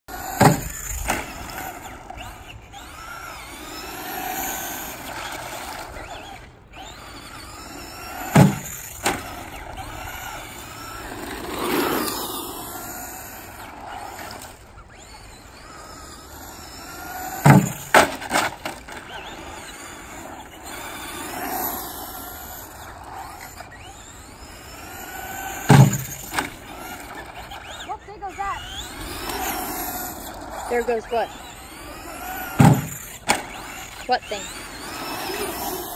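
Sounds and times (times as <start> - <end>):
rc truck motor whine: 0.1 - 35.9
truck knocking on wooden ramp: 32.6 - 33.0.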